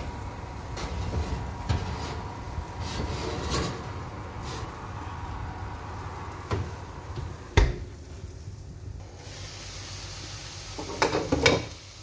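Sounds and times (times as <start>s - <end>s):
oven door shutting: 0.0s - 4.8s, 6.5s - 7.9s
potatoes sizzling in a pan: 0.0s - 12.0s.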